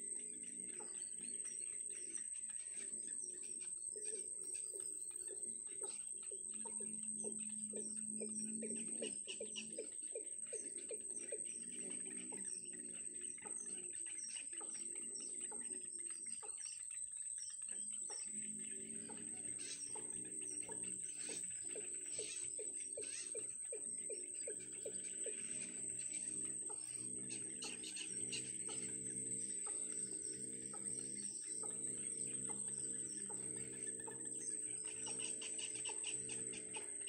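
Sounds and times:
nestlings ticking calls: 18.0s - 37.0s.

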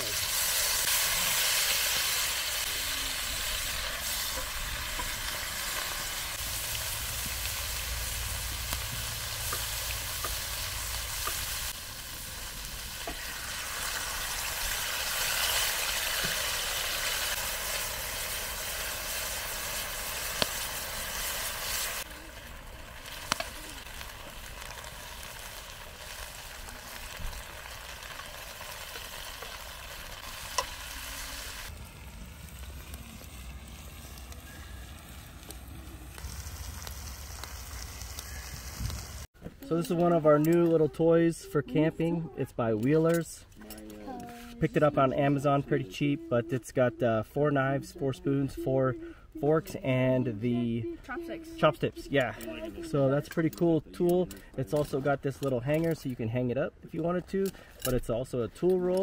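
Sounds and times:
steaks sizzling in a skillet: 0.0s - 39.3s.

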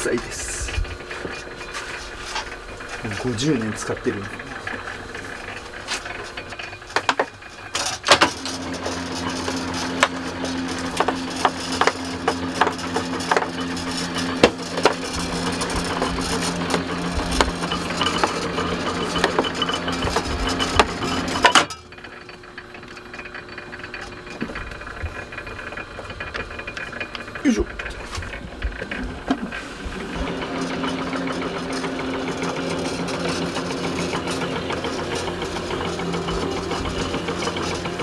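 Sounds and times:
machine motor hum: 0.0s - 38.0s
machine clattering knocks: 30.2s - 38.0s.

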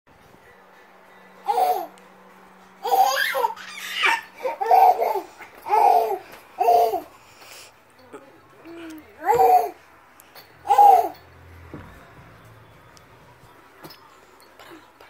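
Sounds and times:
baby laughing and babbling: 1.4s - 2.0s, 2.8s - 7.2s, 8.2s - 9.9s, 10.6s - 11.2s.

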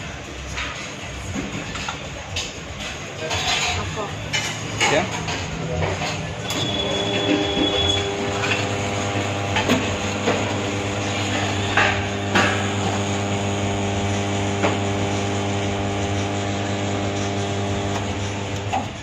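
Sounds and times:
espresso machine pump humming: 6.6s - 19.0s
espresso pouring into cup: 6.8s - 19.0s.

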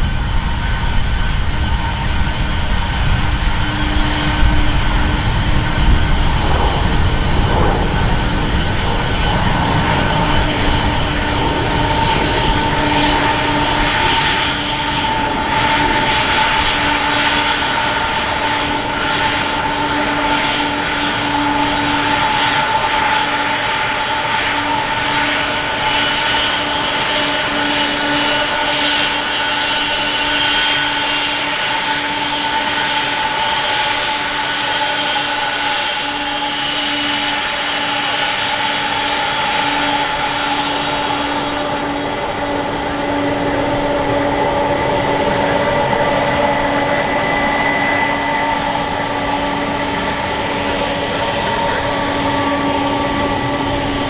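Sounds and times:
rushing noise: 0.0s - 19.9s
jet engines humming: 0.0s - 54.0s.

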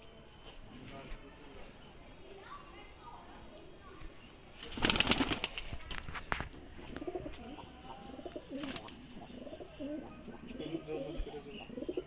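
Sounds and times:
pigeon wings flapping: 4.6s - 6.5s
pigeons cooing: 6.8s - 12.0s.

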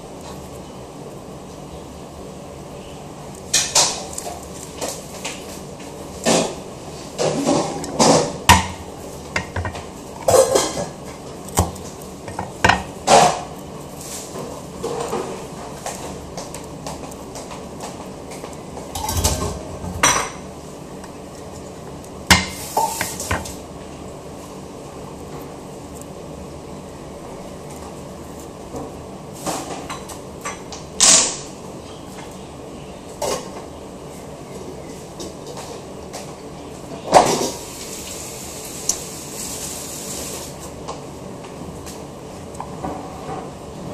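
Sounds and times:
low background hum: 0.0s - 43.9s
scraping rustles of handling: 13.8s - 16.4s.

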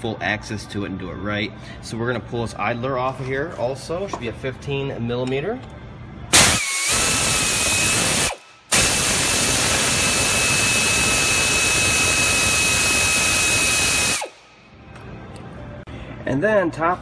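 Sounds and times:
power tool whining: 6.3s - 14.4s
loud hiss: 6.4s - 14.4s.

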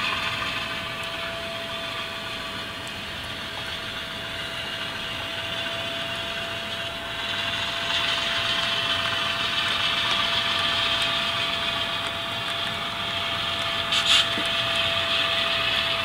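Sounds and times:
diesel engine rumble: 0.0s - 16.0s
model train wheels clicking on rail: 0.0s - 16.0s.

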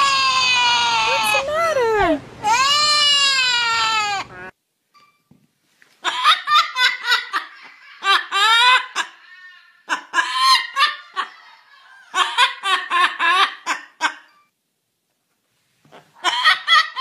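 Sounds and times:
parrot mimicking laughter: 2.4s - 4.5s, 6.0s - 14.3s, 15.9s - 17.0s.

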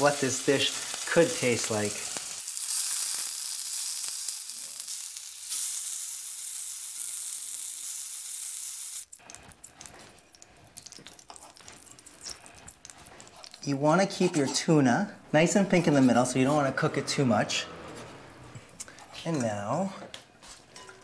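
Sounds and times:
fish sizzling in frying pan: 0.0s - 9.3s.

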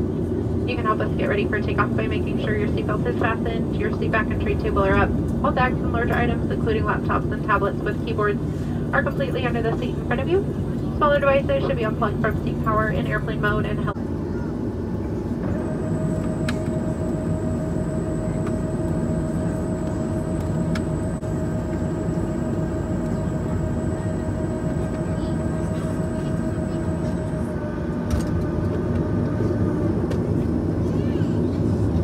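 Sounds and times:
airplane engine rumble: 0.0s - 32.0s
flap drive whine: 15.0s - 32.0s.

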